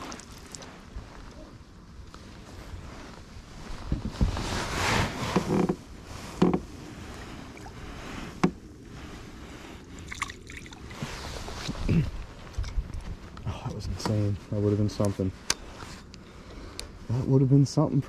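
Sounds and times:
clothing rustling: 2.2s - 9.4s.

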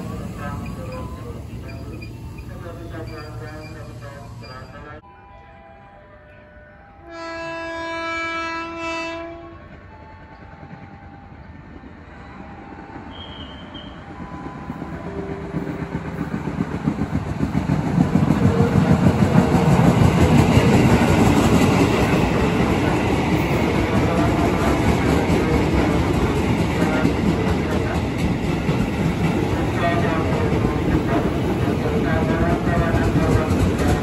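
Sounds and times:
train rumbling past: 0.0s - 5.0s, 8.6s - 34.0s
train horn blast: 5.6s - 9.9s, 13.1s - 14.1s.

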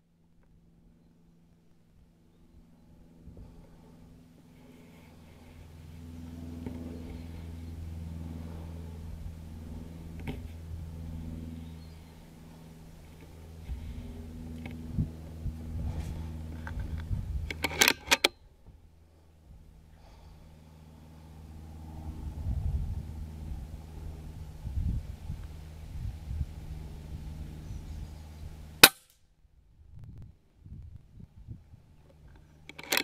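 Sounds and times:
low hum: 0.0s - 33.0s
rifle shot cracks: 28.8s - 29.1s.

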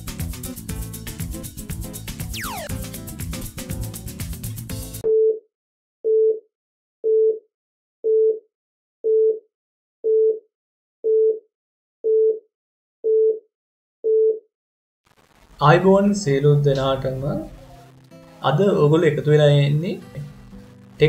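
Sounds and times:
intro music: 0.1s - 5.0s, 15.7s - 21.0s
countdown beeps: 2.4s - 2.7s.

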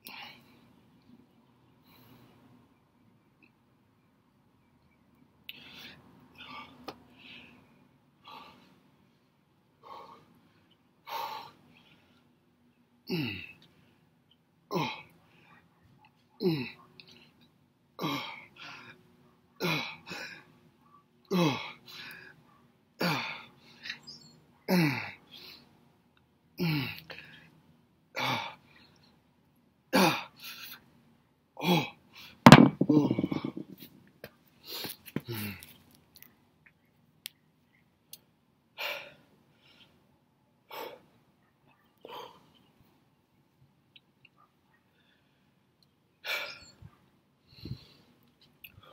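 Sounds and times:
soft breaths: 5.4s - 12.8s, 38.8s - 43.2s, 44.4s - 48.9s.

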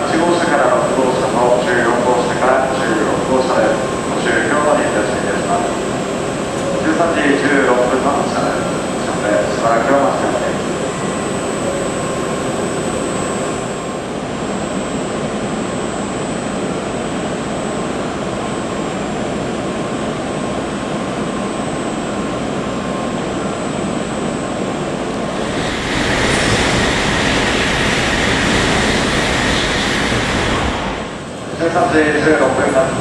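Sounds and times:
train running hum: 0.0s - 33.0s
loud rushing noise: 25.2s - 32.1s.

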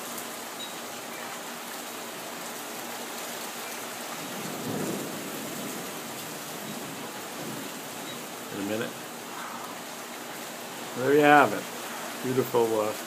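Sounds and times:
rain falling: 0.0s - 13.0s
low rumble of thunder: 4.2s - 9.8s.

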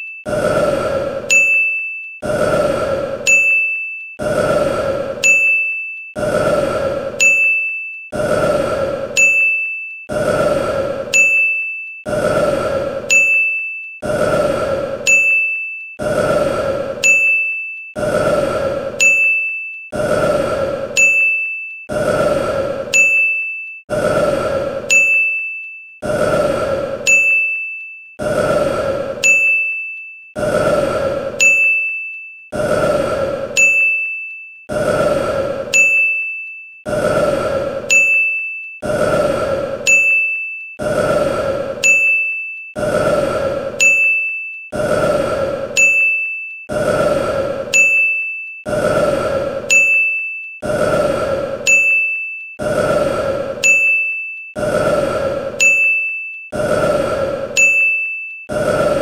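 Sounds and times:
high bell-like ding: 1.3s - 2.0s, 3.3s - 4.0s, 5.2s - 5.9s, 7.2s - 7.9s, 9.2s - 9.8s, 17.0s - 17.7s, 19.0s - 19.6s, 24.9s - 25.6s, 27.1s - 27.8s, 29.2s - 29.9s, 31.4s - 32.2s, 33.6s - 34.3s, 43.8s - 44.5s, 51.7s - 52.3s, 53.6s - 54.3s, 55.6s - 56.3s, 57.6s - 58.3s.

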